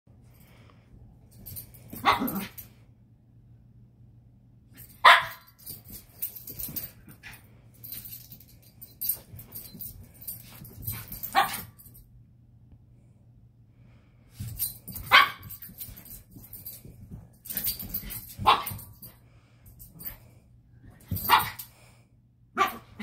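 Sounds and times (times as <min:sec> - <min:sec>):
light clicks and rattles: 0:01.2 - 0:02.7, 0:04.8 - 0:12.0, 0:14.3 - 0:21.8
small dog barking: 0:02.0 - 0:02.5, 0:05.0 - 0:05.5, 0:22.6 - 0:23.0.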